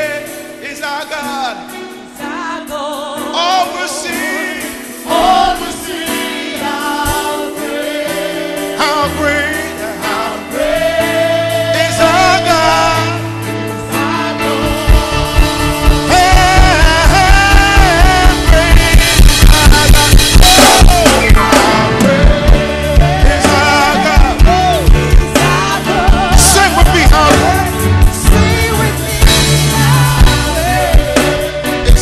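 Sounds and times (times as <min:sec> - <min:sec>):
church band gospel music: 0:00.0 - 0:32.0
drum kit beat: 0:00.0 - 0:32.0
voices singing along: 0:02.2 - 0:32.0.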